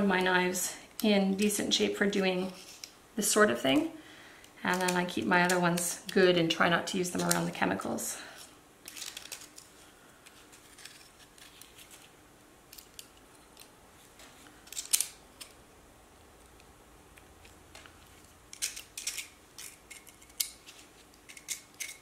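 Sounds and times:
knife scraping foil: 0:10.4 - 0:12.0.

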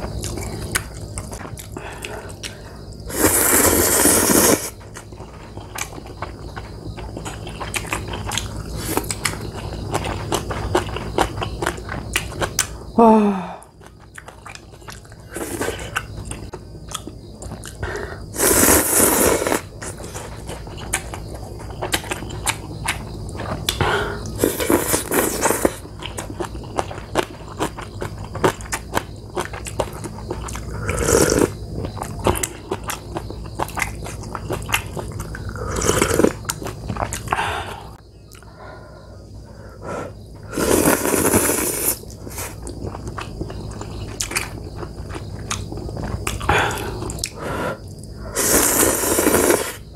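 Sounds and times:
wet chewing: 0:00.0 - 0:12.8, 0:13.8 - 0:38.5, 0:40.6 - 0:49.8
noodle slurps: 0:03.1 - 0:04.8, 0:18.4 - 0:19.6, 0:40.5 - 0:42.6, 0:48.3 - 0:49.8.

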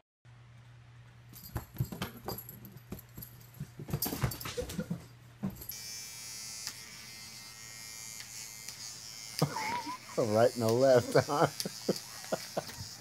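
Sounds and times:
electric toothbrush buzzing: 0:05.6 - 0:13.0.

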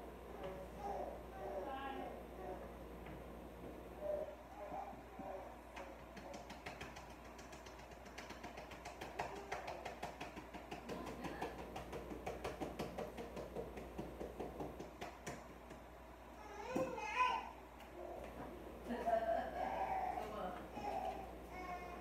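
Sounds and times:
utensil beating in mixing bowl: 0:05.8 - 0:15.9.

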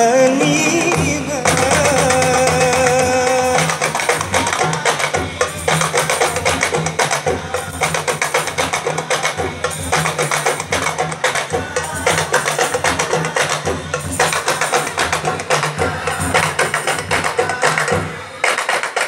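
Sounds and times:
frame drums playing fast rhythm: 0:00.0 - 0:19.0.

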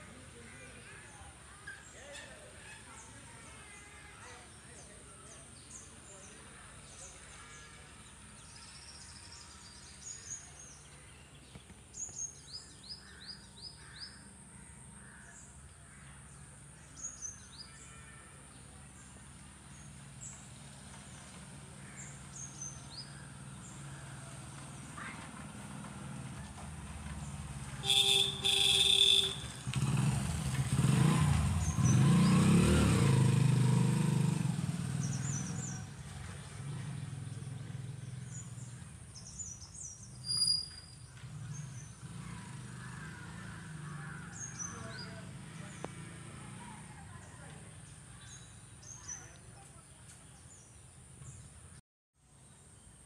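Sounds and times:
motor vehicle passing: 0:19.0 - 0:49.5
birds chirping: 0:27.2 - 0:51.6
vehicle horn beeping: 0:27.8 - 0:30.0.

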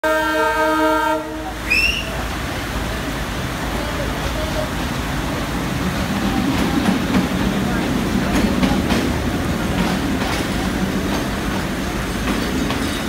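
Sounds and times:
locomotive horn blowing: 0:00.0 - 0:02.1
locomotive rumble: 0:00.0 - 0:13.0
heavy rain hiss: 0:00.1 - 0:13.0.

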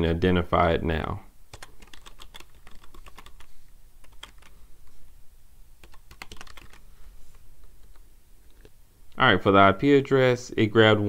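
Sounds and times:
keyboard typing: 0:01.5 - 0:04.5, 0:05.8 - 0:06.8.

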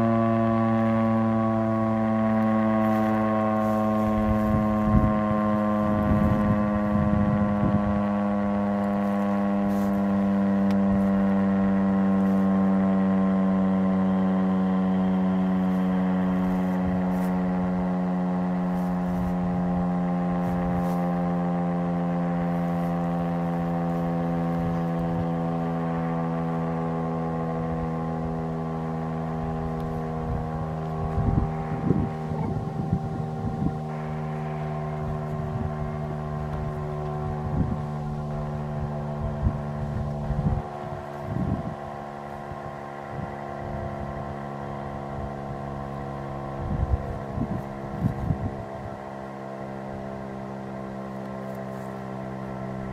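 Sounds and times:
warning siren alert tone: 0:00.0 - 0:52.9
wind buffeting microphone: 0:02.2 - 0:25.8, 0:27.5 - 0:49.4.

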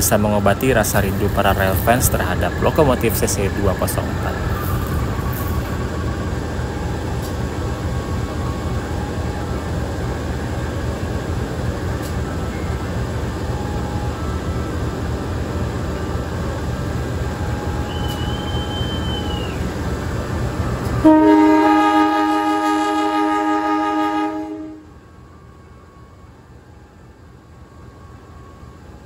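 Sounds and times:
train rumbling: 0:00.0 - 0:29.0
locomotive horn blast: 0:17.4 - 0:19.5, 0:20.9 - 0:25.0.

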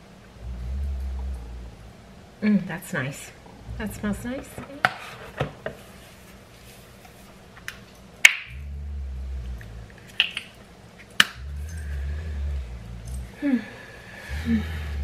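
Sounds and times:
low rumble: 0:00.0 - 0:04.9, 0:08.5 - 0:15.0.

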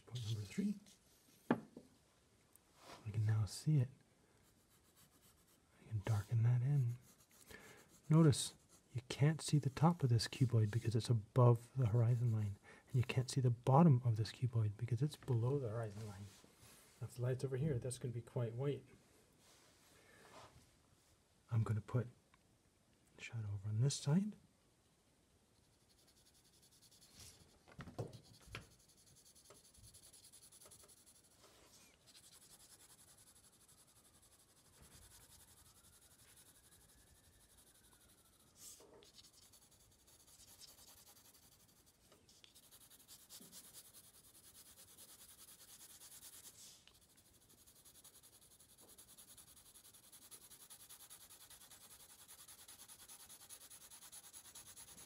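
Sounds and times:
pencil scratching on card: 0:04.4 - 0:05.6, 0:06.9 - 0:08.9, 0:25.7 - 0:55.0.

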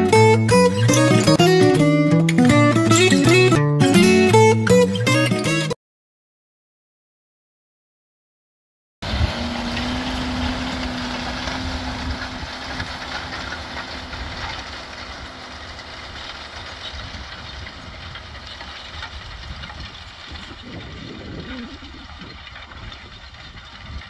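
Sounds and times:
tractor diesel engine working: 0:09.0 - 0:24.0.

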